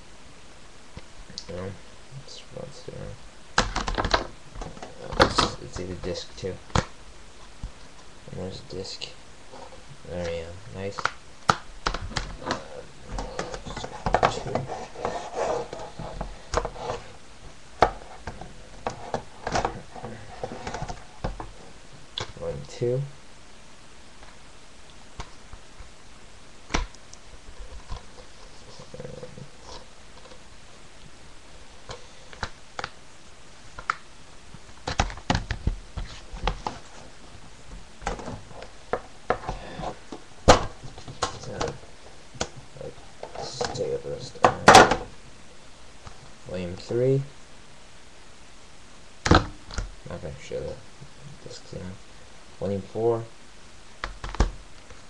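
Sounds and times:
plastic cases clicking and knocking: 3.6 - 5.9, 34.8 - 35.8, 38.0 - 41.8.

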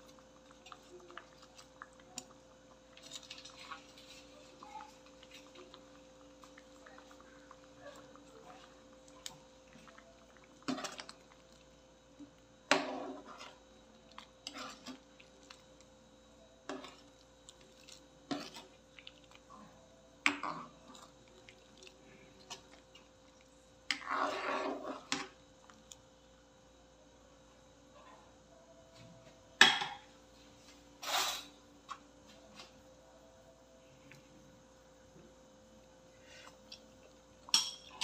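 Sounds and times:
faint steady hum: 0.0 - 38.0
metal ladle scraping a pan: 31.0 - 31.5.

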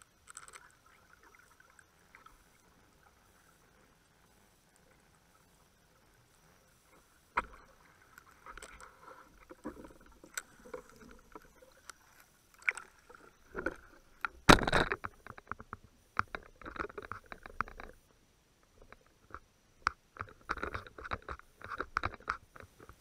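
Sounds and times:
water splashing: 7.2 - 14.6.

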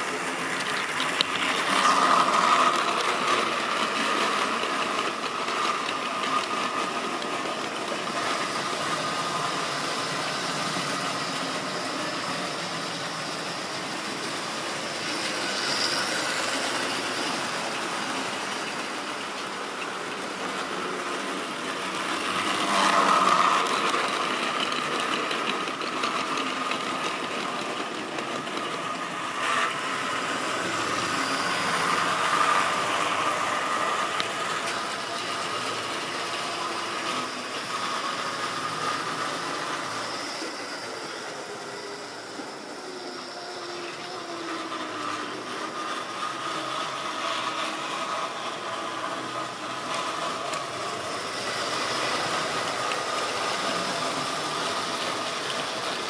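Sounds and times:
model train motors whirring: 0.0 - 56.0.

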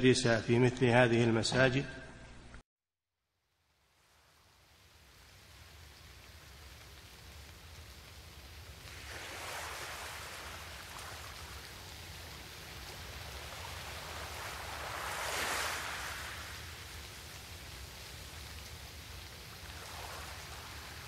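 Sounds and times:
rushing water: 4.0 - 21.0.

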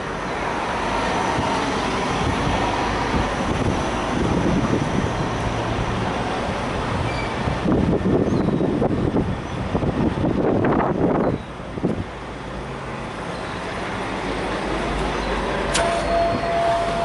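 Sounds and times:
engines and traffic hum: 0.0 - 17.0
sharp click: 15.7 - 16.1
steady high tone: 15.7 - 17.0.

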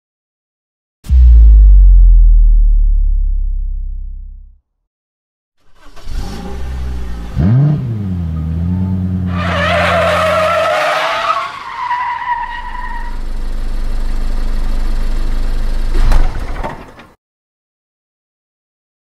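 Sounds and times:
car engine revving: 5.8 - 11.1
tyres screeching: 9.3 - 13.2.

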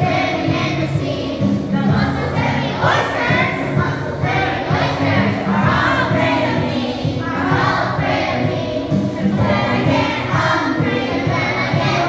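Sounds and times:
children's chorus singing: 0.0 - 12.0
music: 0.0 - 12.0.

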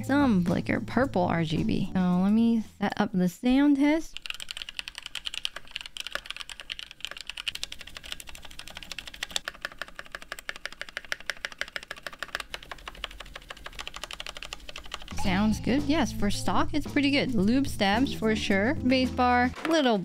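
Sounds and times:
mechanical keyboard typing: 4.1 - 15.2.

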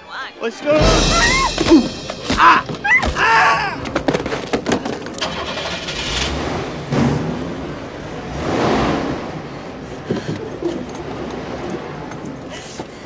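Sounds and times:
starter clicks and rattles: 3.8 - 6.3
van engine revving: 5.2 - 12.2.

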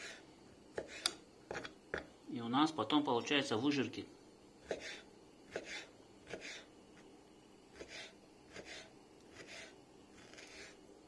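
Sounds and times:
knife cutting on wooden board: 0.0 - 2.1, 4.6 - 6.7, 7.7 - 10.8.

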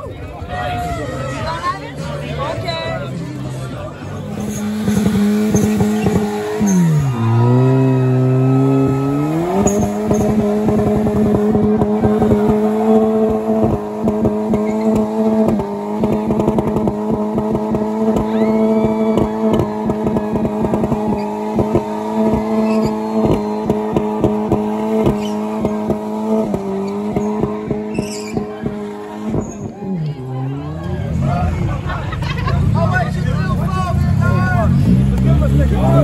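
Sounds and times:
tyres squealing on asphalt: 4.1 - 16.1, 17.8 - 31.6
car engine revving high: 4.2 - 31.6.

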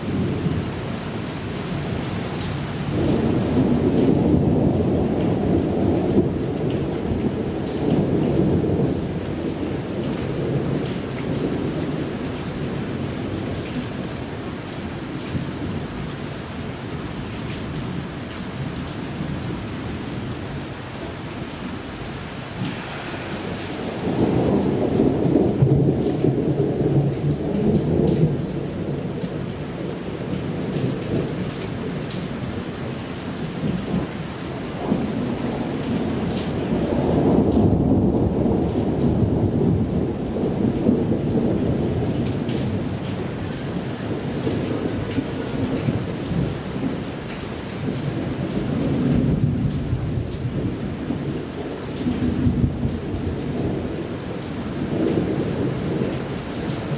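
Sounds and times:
low rolls of thunder: 0.0 - 56.9
steady rain: 0.0 - 56.9.

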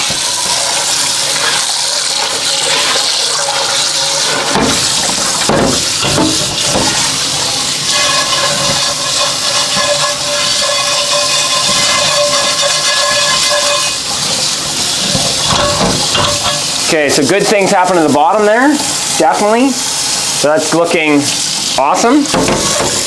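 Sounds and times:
pot being scrubbed: 0.0 - 23.0
tap water running into steel sink: 0.0 - 23.0
water falling on pot: 0.0 - 23.0
pot knocking: 4.4 - 16.8, 22.3 - 23.0.

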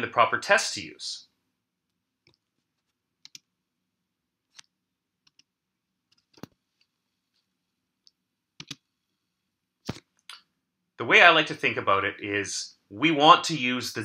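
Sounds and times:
faint irregular clicks: 1.8 - 3.5, 4.4 - 9.1.

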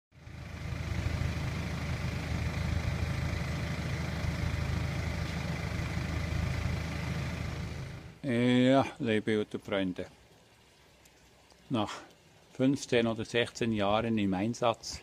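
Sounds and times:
engine idling: 0.1 - 8.2.

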